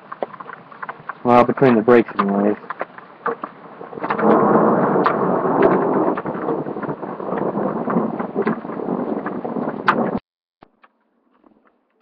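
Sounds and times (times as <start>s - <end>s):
rain: 0.0s - 10.2s
rolling thunder: 3.8s - 10.2s.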